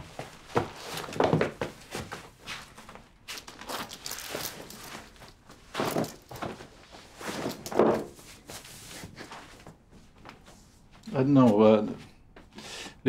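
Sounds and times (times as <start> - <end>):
clothing rustling: 0.0 - 12.6
feet shuffling on wooden floor: 0.0 - 12.8.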